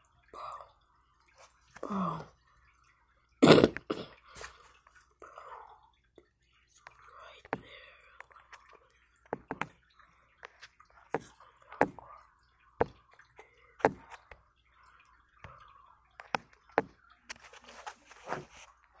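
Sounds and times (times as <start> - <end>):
fingers tapping on phone: 9.3 - 9.8, 12.8 - 13.2, 13.8 - 14.4, 16.2 - 17.0.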